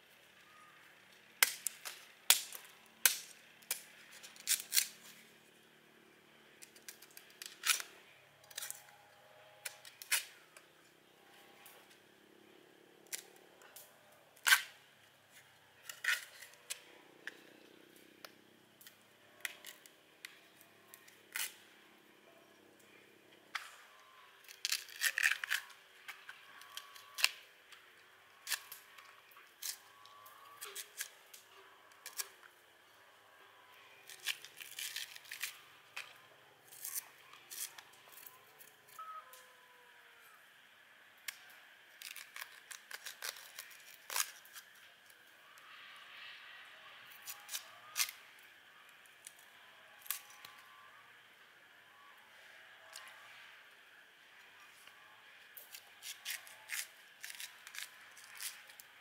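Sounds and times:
objects clicking and scraping by hand: 6.6 - 9.0, 15.3 - 17.4, 41.2 - 45.2, 55.6 - 59.0.

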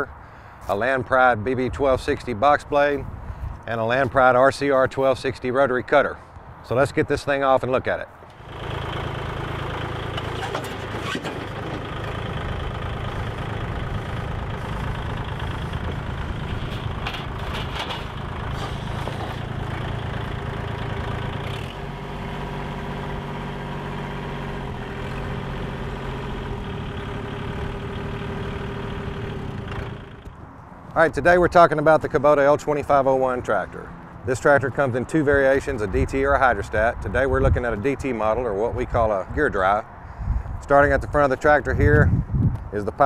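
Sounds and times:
tractor diesel engine running: 8.2 - 40.6.

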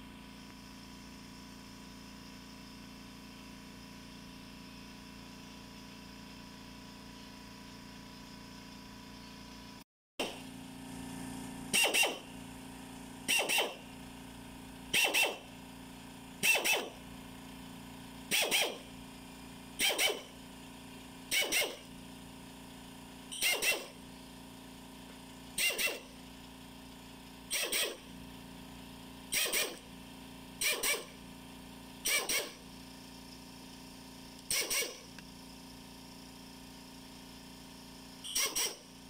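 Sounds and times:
pneumatic drill boring through metal: 11.6 - 33.4, 34.0 - 35.7, 36.7 - 39.0.

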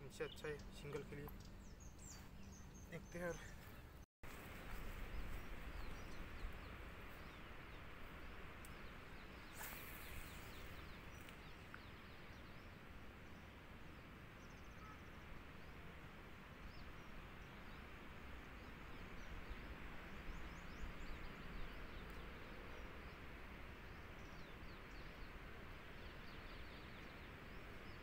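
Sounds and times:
faint bird chirps: 8.7 - 12.6, 14.4 - 15.3.

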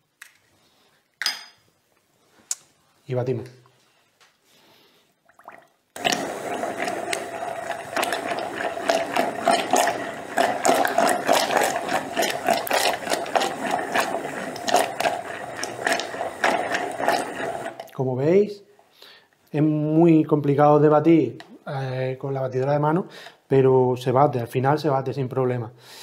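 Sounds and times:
immersion blender motor hum: 6.0 - 17.9.

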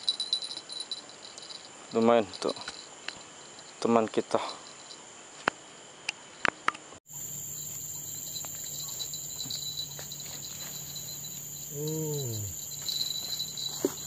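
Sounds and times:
crickets chirring: 0.0 - 14.0
person exclaiming: 11.7 - 12.5.

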